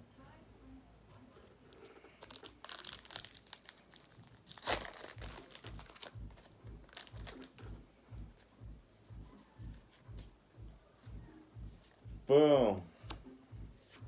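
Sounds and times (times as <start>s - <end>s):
cards rustling: 1.3s - 7.8s
foil wrapper crinkling and tearing: 2.1s - 6.2s, 6.8s - 7.6s.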